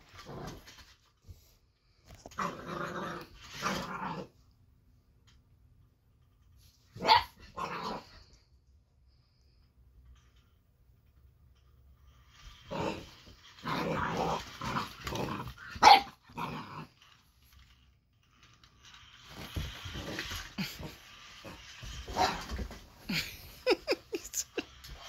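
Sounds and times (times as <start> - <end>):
puppy growling: 2.3 - 4.4, 12.6 - 17.0
puppy barking sharply: 7.0 - 7.3, 15.8 - 16.1.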